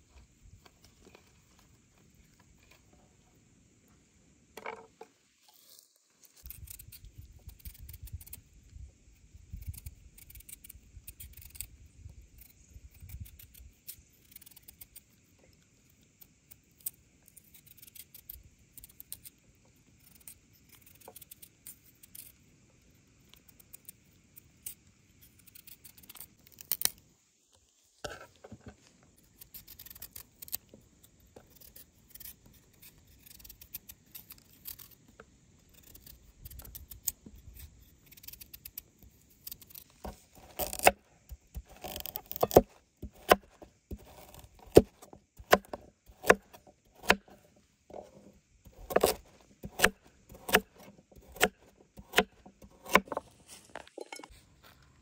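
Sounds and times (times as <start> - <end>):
knife peeling carrot: 5.5 - 8.5, 9.2 - 22.5, 23.2 - 27.0, 29.2 - 54.3
knife chopping on wooden board: 40.0 - 47.3, 48.7 - 53.2.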